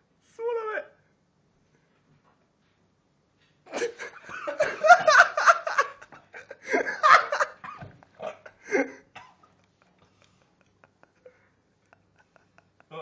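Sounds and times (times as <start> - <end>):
bursts of laughter: 3.7 - 9.1.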